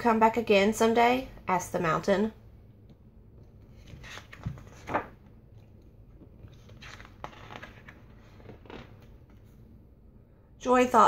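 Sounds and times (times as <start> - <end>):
paper page turning: 3.7 - 5.2, 6.2 - 9.6.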